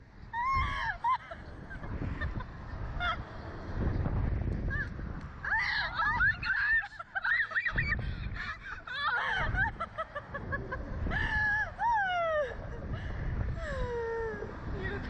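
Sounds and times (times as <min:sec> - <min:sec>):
wind buffeting microphone: 0:00.0 - 0:15.0
woman squealing: 0:00.4 - 0:01.2, 0:08.9 - 0:09.7
woman laughing in high bursts: 0:06.6 - 0:12.9.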